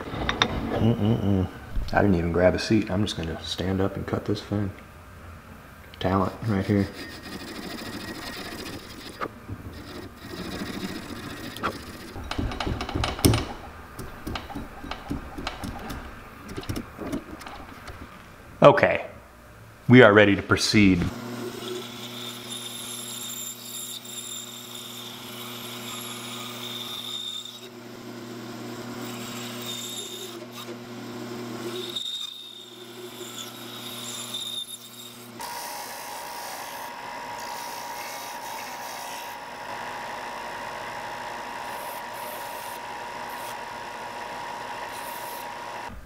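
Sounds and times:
scroll saw cutting wood: 6.1s - 17.8s, 21.1s - 46.0s
belt sander sanding wood: 6.4s - 18.0s, 31.7s - 46.0s.

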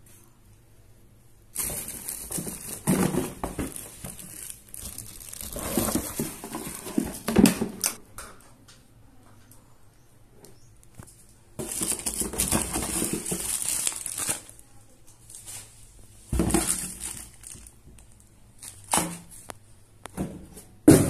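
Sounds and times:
plastic wrapping crinkling: 1.5s - 8.0s, 11.6s - 19.5s.

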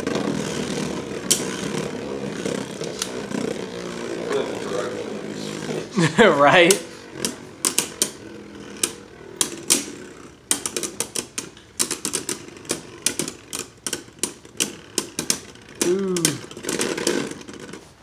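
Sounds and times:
spinning tops clacking: 6.6s - 17.9s.

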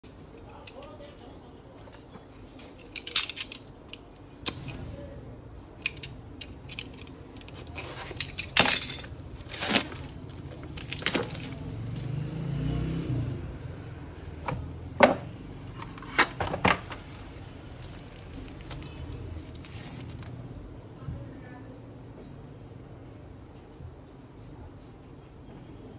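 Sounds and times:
plastic wrap crinkling: 9.0s - 11.8s, 17.1s - 20.4s.

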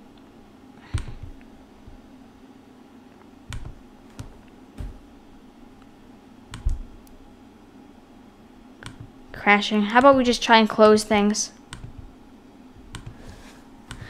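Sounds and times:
faint room hum: 0.0s - 14.0s
computer input clicks: 3.5s - 3.8s.

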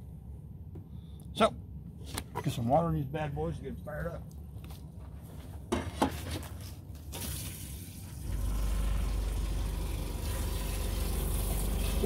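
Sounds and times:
low steady hum: 0.0s - 7.1s, 7.8s - 12.0s
tap water running into pot: 8.2s - 12.0s.

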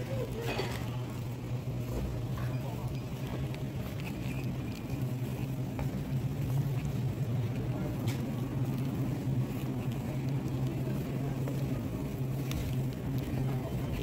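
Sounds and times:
refrigerator hum: 0.0s - 14.0s.

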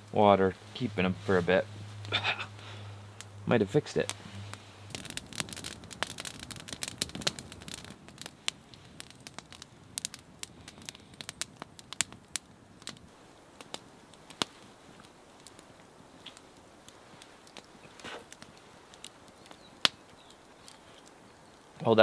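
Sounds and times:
campfire crackling and popping: 0.0s - 22.0s.

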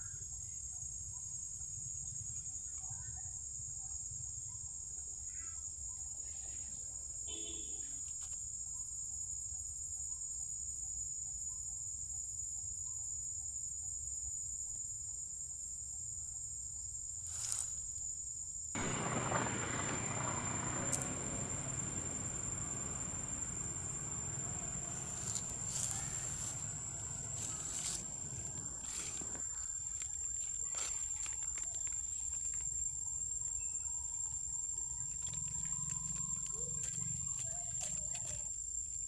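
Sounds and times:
even hiss: 18.8s - 29.4s
high-pitched insect drone: 18.8s - 29.4s.

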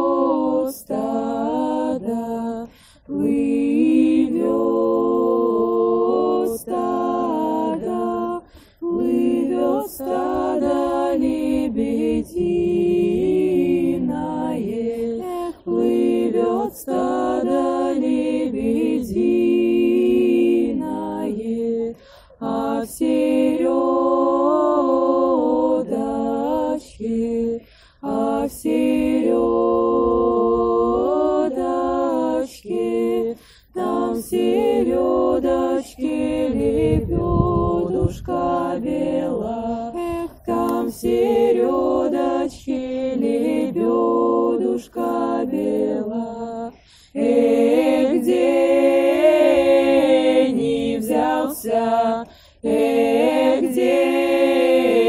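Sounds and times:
women singing a cappella: 0.0s - 55.0s
singers breathing: 2.6s - 3.1s, 8.4s - 8.9s, 21.9s - 22.4s, 27.6s - 28.1s, 33.3s - 33.8s, 46.7s - 47.2s, 52.2s - 52.6s.

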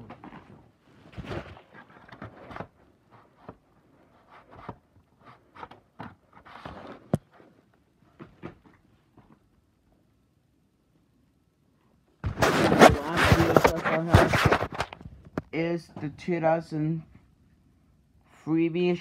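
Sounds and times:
handling rustling and scraping: 0.0s - 9.4s, 12.2s - 15.4s.

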